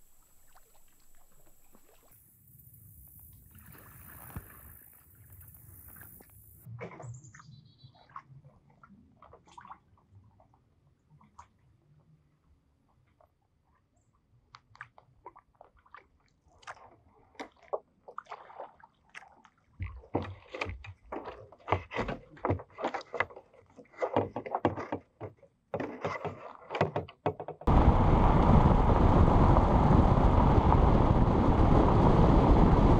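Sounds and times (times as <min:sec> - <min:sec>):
kayak paddle splashing: 0:00.0 - 0:02.4, 0:03.2 - 0:10.1, 0:14.7 - 0:32.9
wind and road noise: 0:27.7 - 0:32.9.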